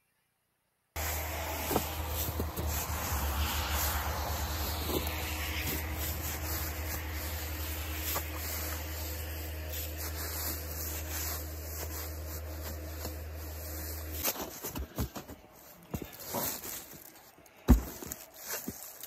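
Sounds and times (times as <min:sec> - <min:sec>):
low rumble: 0:01.0 - 0:14.0
dry leaves rustling and crunching: 0:01.0 - 0:19.0.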